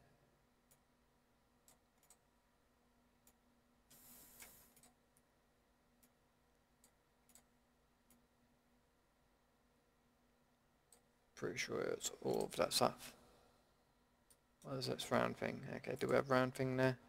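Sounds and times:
computer mouse clicks: 1.6 - 2.3, 3.2 - 5.3, 6.8 - 8.2.

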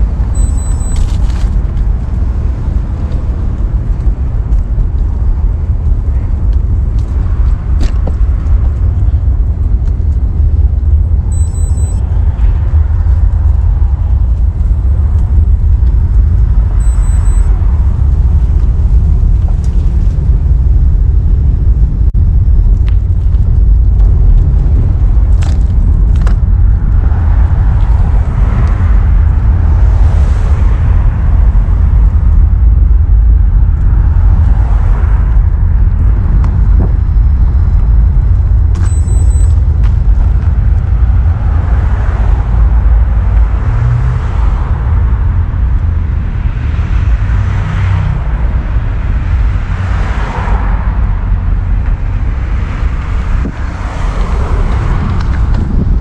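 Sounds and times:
passing traffic: 0.0 - 56.0
road and wind rumble: 0.0 - 56.0
high beep: 0.3 - 1.1, 11.3 - 12.1, 16.8 - 17.6, 38.8 - 39.6.

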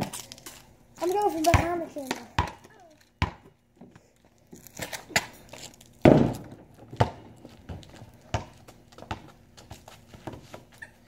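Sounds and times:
basketball bouncing on concrete: 1.0 - 3.6, 6.0 - 10.8.

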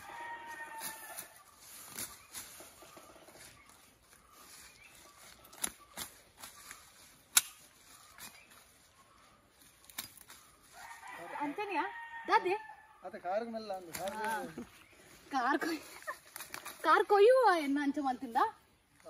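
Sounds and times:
leafy undergrowth rustling: 0.0 - 12.3, 13.4 - 19.0
stems snapping: 5.3 - 8.6, 9.8 - 10.5, 13.8 - 14.7, 16.2 - 16.8.

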